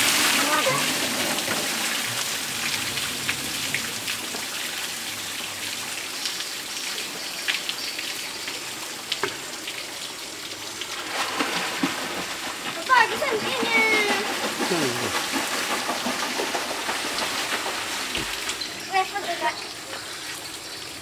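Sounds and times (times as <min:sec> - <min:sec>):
water splashing into pool: 0:00.0 - 0:21.0
water drips: 0:00.4 - 0:11.9, 0:12.6 - 0:21.0.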